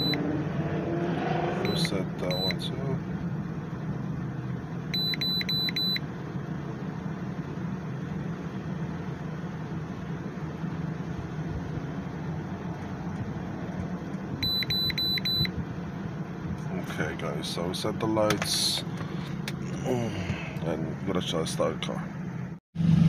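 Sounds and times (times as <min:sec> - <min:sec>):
high-pitched electronic beeps: 0:00.0 - 0:00.2, 0:01.6 - 0:02.6
steady low hum: 0:00.0 - 0:23.0.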